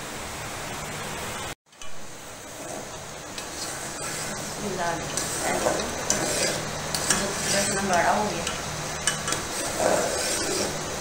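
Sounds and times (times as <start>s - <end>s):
ladle scraping and sloshing in pot: 2.5s - 11.0s.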